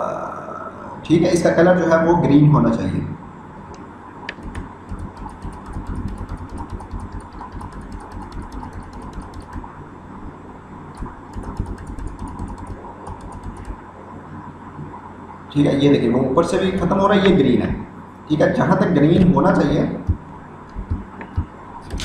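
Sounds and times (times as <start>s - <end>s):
steady low hum: 0.0s - 22.0s
computer keyboard keys clicking: 4.3s - 9.7s, 11.0s - 13.8s, 19.6s - 22.0s.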